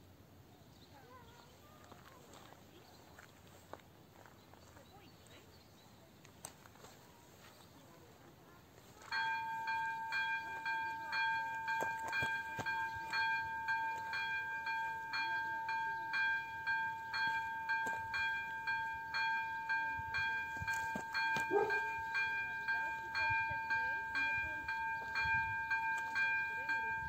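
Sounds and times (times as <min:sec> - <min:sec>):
level crossing bell dinging: 0:09.1 - 0:27.0.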